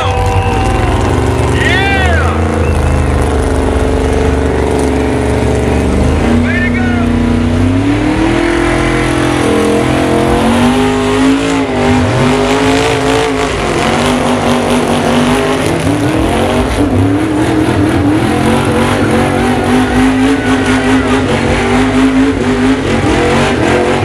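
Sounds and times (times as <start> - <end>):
truck engine revving hard: 0.0 - 24.0.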